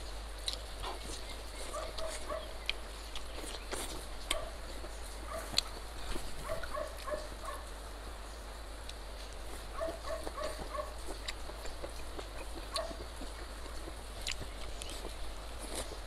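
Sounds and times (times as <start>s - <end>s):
dog yapping: 1.7s - 2.5s, 5.2s - 5.6s, 6.4s - 7.7s, 9.7s - 11.1s, 12.7s - 13.1s.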